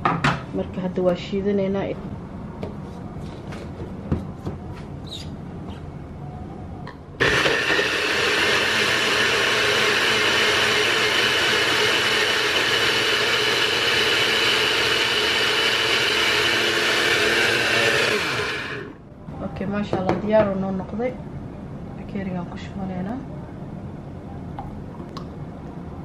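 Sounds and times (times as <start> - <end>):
blender motor whining: 7.2 - 19.0.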